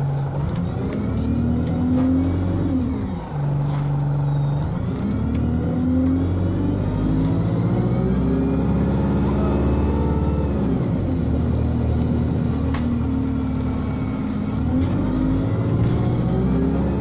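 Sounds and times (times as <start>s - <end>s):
bus engine revving: 0.0s - 17.0s.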